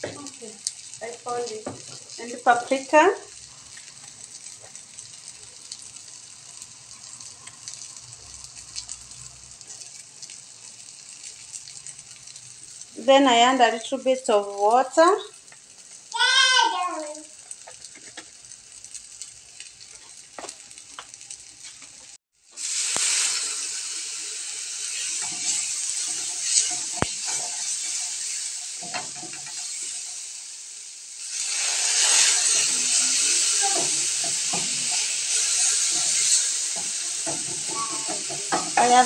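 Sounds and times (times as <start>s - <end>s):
food sizzling in a frying pan: 0.0s - 39.0s
water boiling off into steam: 0.0s - 39.0s
wooden spatula scraping pan: 31.8s - 39.0s.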